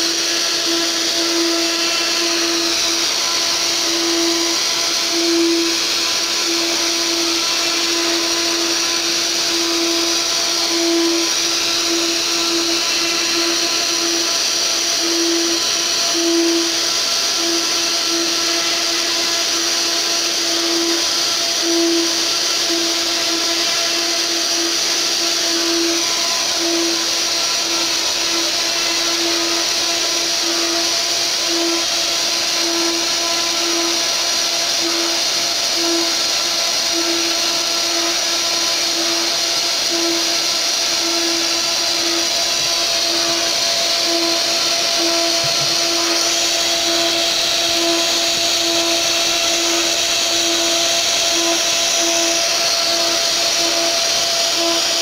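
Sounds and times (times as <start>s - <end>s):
router bit carving wood: 0.0s - 55.0s
router spindle whining: 0.0s - 55.0s.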